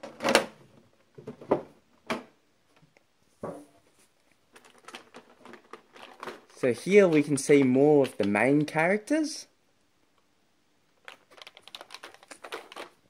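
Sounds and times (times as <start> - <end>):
plastic figures clicking and rustling: 4.5 - 8.7, 11.0 - 13.0.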